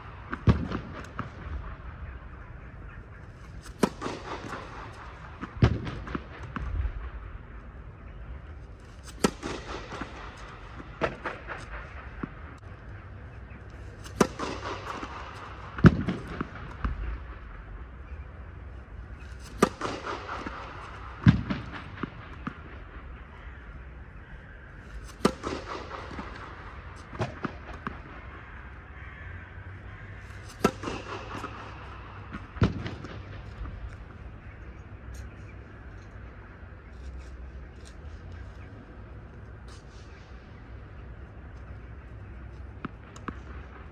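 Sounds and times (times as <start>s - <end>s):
low steady hum: 0.0s - 43.9s
tennis racket striking ball: 3.5s - 5.6s, 8.9s - 12.3s, 14.0s - 16.4s, 19.2s - 22.5s, 24.8s - 28.0s, 30.2s - 33.3s.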